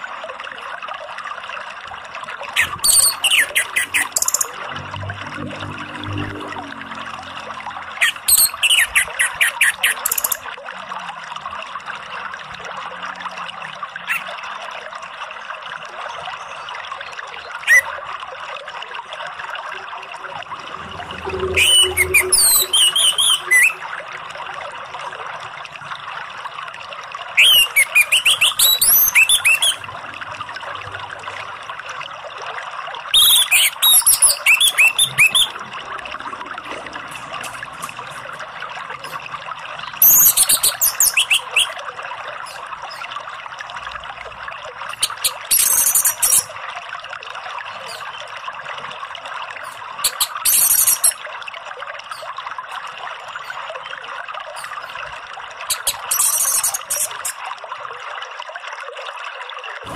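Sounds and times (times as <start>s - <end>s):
bird singing whistled phrases: 2.6s - 4.6s, 21.3s - 23.8s, 27.4s - 29.8s, 33.2s - 35.6s, 40.0s - 41.8s.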